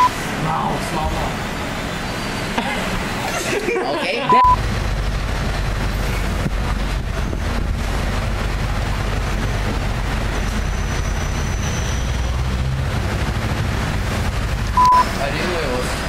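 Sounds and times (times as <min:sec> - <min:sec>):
low background rumble: 0:03.1 - 0:16.0
short high beep: 0:04.3 - 0:04.6, 0:14.8 - 0:15.1.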